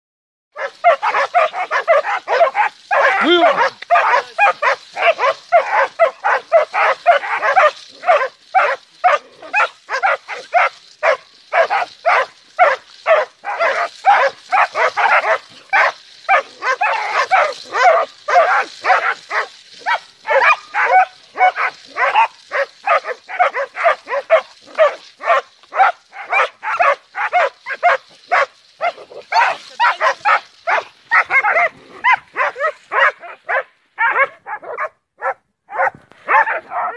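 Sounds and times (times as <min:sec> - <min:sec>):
dogs barking rapidly: 0:00.6 - 0:36.9.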